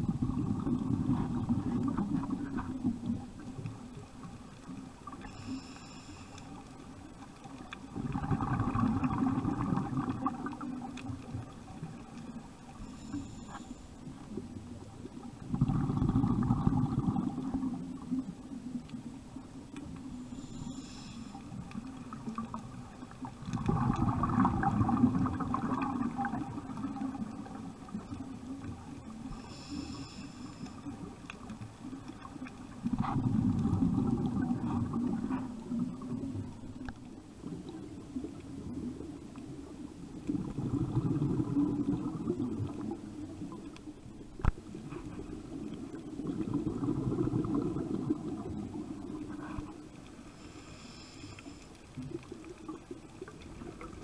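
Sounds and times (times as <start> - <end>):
regulator exhale bubbling: 0.0 - 3.5, 7.9 - 10.9, 15.3 - 18.2, 20.2 - 31.2, 32.8 - 36.4, 40.2 - 43.7, 44.7 - 54.0
inhalation hiss: 5.2 - 6.6, 12.7 - 14.0, 20.3 - 21.7, 29.2 - 31.0, 49.3 - 51.9.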